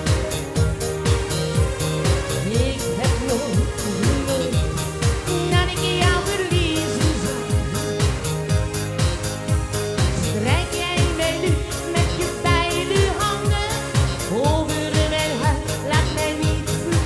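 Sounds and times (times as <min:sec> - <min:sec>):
pop music with kick drum beat: 0:00.0 - 0:17.0
woman singing into a microphone: 0:02.4 - 0:08.0, 0:10.1 - 0:17.0.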